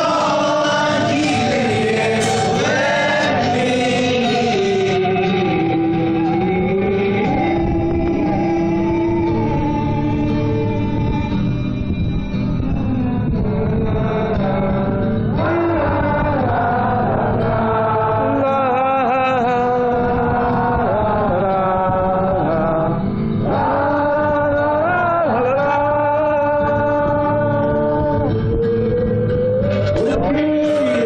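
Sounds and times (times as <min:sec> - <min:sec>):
man singing held notes: 0:00.0 - 0:05.2, 0:29.8 - 0:31.0
strummed acoustic guitar: 0:00.0 - 0:31.0.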